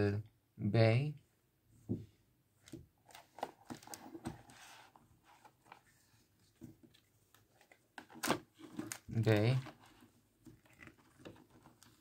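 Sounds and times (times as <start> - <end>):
paper rustling: 3.0 - 12.0.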